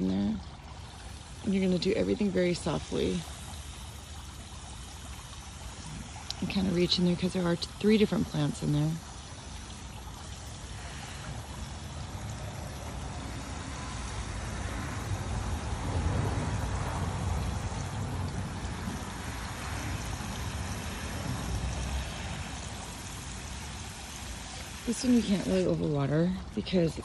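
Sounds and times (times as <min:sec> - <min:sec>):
hose water running into soil: 0:00.0 - 0:27.0.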